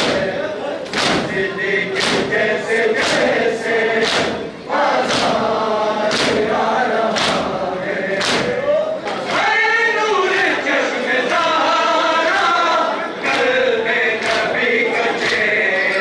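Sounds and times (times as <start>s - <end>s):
men chanting in unison: 0.0s - 16.0s
chest slaps: 0.9s - 1.4s, 2.0s - 2.4s, 6.1s - 6.4s, 7.1s - 7.5s, 8.2s - 9.2s.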